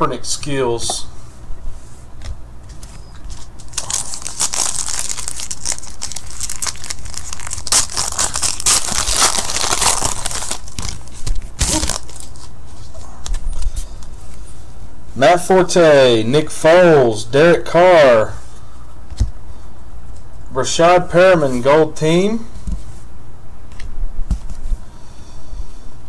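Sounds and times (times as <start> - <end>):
plastic wrapper crinkling and tearing: 3.6 - 12.6.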